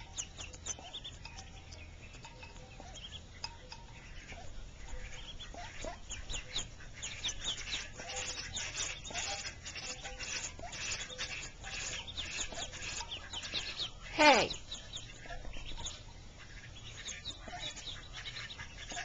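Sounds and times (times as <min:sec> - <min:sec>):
ducklings peeping: 0:00.0 - 0:19.0.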